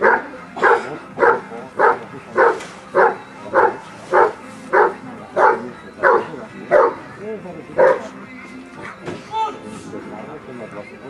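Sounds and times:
dog barking rhythmically: 0:00.0 - 0:07.2, 0:07.8 - 0:08.1.

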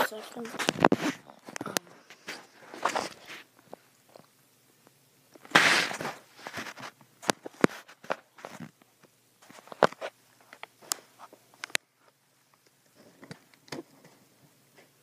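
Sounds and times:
plastic rustle: 0:05.5 - 0:08.8.

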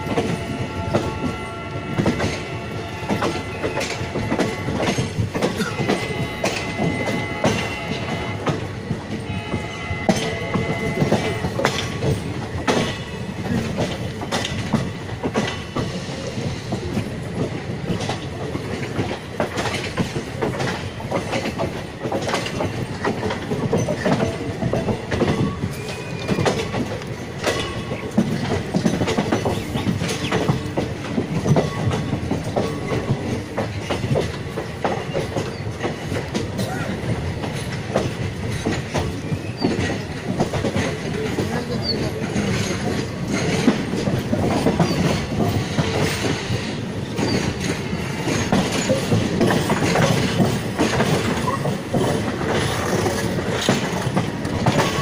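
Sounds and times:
train rumbling: 0:00.0 - 0:55.0
wheels clattering over rail joints: 0:02.1 - 0:55.0.

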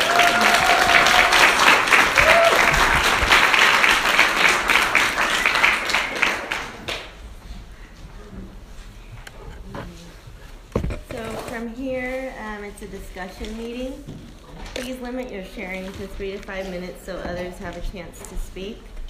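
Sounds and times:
people applauding: 0:00.0 - 0:07.2.

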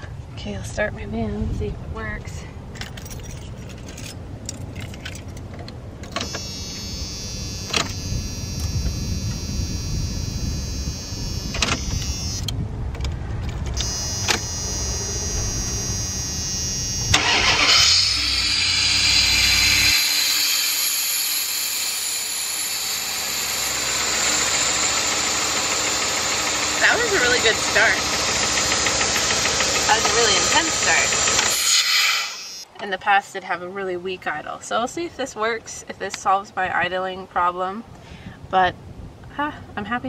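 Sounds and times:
van engine running: 0:02.6 - 0:31.6
starter cranking engine: 0:13.5 - 0:31.6.

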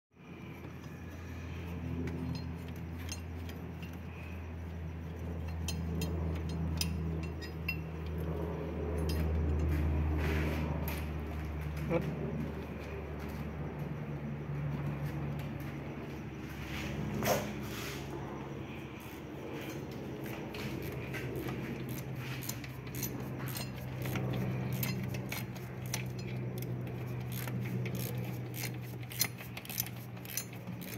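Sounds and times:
engine idling: 0:00.2 - 0:30.9
steady low hum: 0:00.2 - 0:30.9
light metallic clinks: 0:01.6 - 0:10.0, 0:19.0 - 0:30.9
metallic tool clinks: 0:05.4 - 0:08.2.

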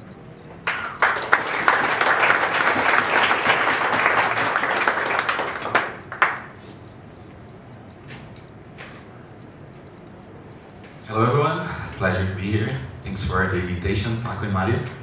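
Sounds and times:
audience applauding: 0:00.6 - 0:06.6.

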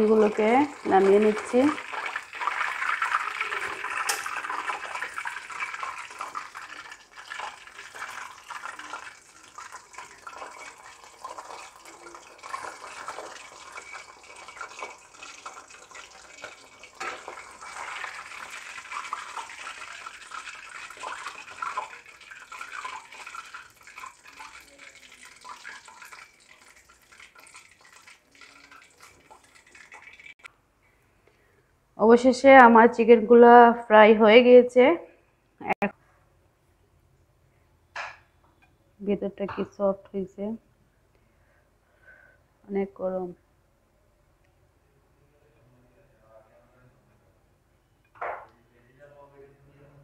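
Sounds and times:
chicken sizzling in hot oil: 0:00.0 - 0:30.5.

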